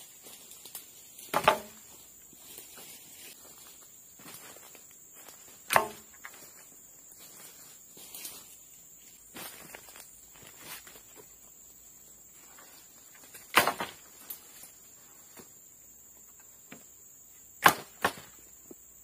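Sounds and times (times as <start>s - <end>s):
footsteps on leaf litter: 0.0s - 5.6s, 6.2s - 11.4s
high insect buzz: 0.0s - 19.0s
wooden poles knocking on ground: 1.2s - 2.0s, 5.6s - 6.4s, 13.3s - 14.0s.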